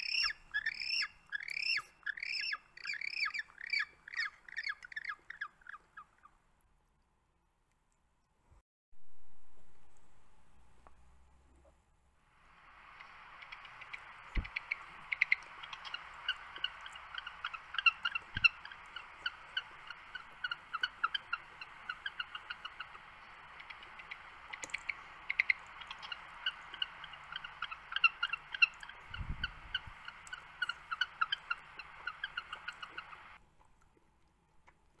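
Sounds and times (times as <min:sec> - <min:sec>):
high chirping animal calls: 0:00.0 - 0:06.4, 0:12.6 - 0:33.4
steady hiss: 0:09.0 - 0:33.4.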